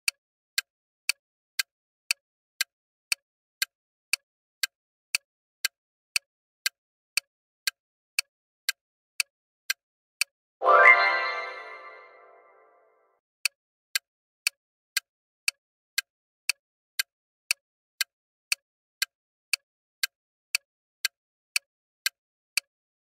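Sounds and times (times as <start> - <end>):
clock-like timer ticks: 0.0 - 10.3, 13.4 - 23.0
bright chime: 10.6 - 12.7.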